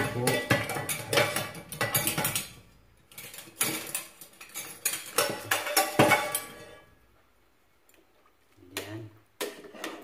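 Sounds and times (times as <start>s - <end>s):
metal kitchenware clinking on pot: 0.0s - 6.9s.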